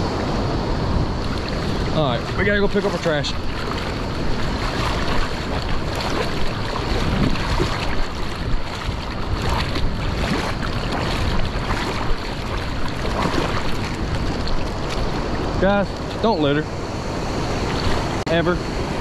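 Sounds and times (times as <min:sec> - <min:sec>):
wind buffeting microphone: 0:00.0 - 0:19.0
water lapping around a kayak: 0:00.1 - 0:19.0.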